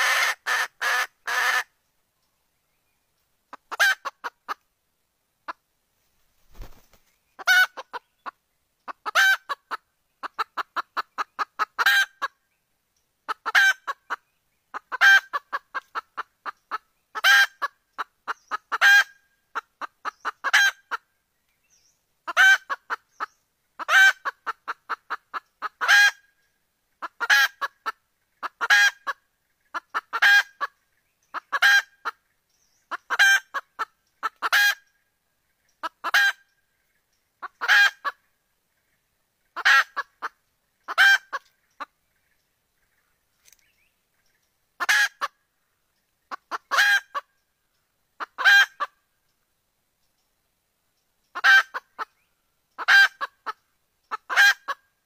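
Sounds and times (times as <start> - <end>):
hen cackling clucks: 0.0 - 1.7, 3.5 - 4.7, 6.5 - 12.4, 13.3 - 21.1, 22.2 - 32.3, 32.9 - 36.5, 37.4 - 42.0, 44.2 - 45.4, 46.2 - 47.4, 48.2 - 49.1, 51.3 - 55.0.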